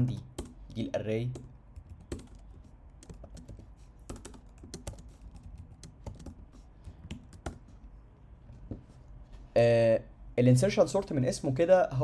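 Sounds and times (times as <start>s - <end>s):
computer keyboard typing: 0.0s - 7.8s.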